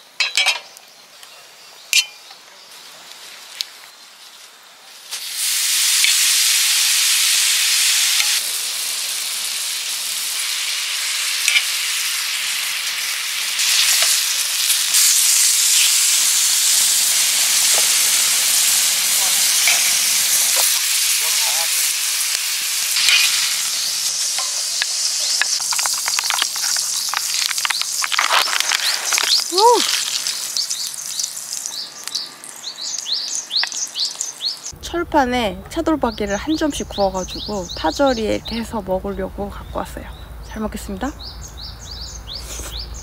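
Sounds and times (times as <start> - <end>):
beef sizzling on a griddle: 4.3 - 34.7.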